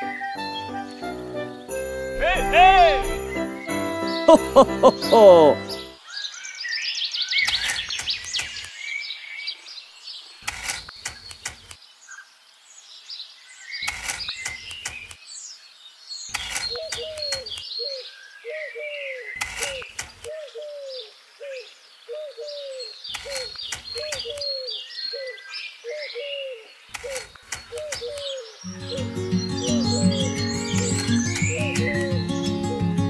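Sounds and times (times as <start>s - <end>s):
birds chirping: 0.0s - 33.0s
low cooing call: 4.3s - 5.6s, 16.9s - 32.9s.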